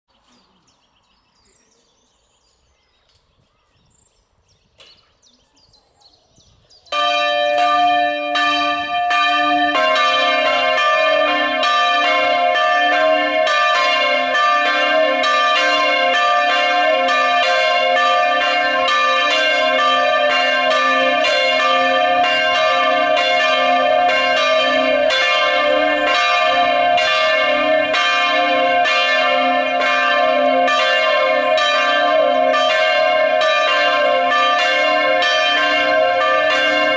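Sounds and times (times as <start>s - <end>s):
church bells ringing: 6.9s - 36.9s.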